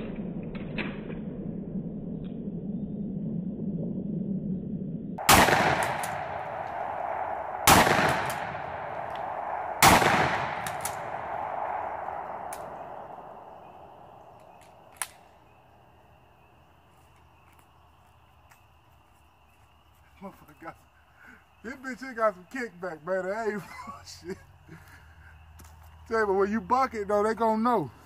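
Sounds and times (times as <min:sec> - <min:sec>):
shotgun blasts echoing: 0:05.2 - 0:13.8
small click: 0:14.4 - 0:15.2.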